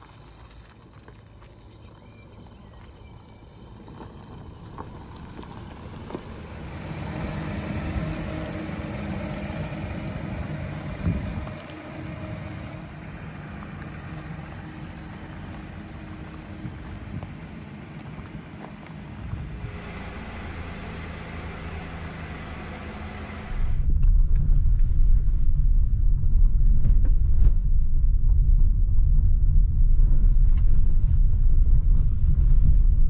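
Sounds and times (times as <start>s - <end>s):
car engine running: 0.0s - 25.0s.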